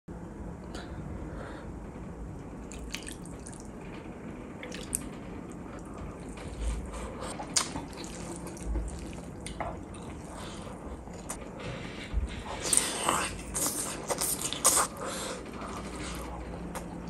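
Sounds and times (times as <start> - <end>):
gravy dripping and splattering: 2.7 - 3.7, 4.6 - 5.1, 7.4 - 10.6
fingers squelching wet rice: 6.2 - 11.4.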